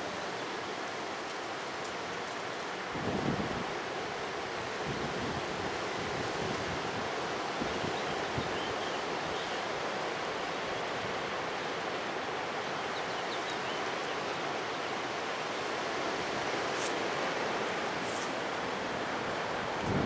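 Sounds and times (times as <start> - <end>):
strong wind through trees: 0.0 - 20.0.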